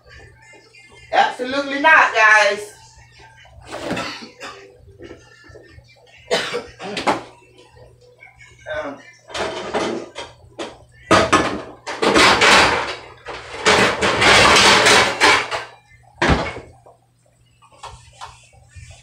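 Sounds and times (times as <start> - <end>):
metal pans clattering and scraping: 9.3 - 16.7.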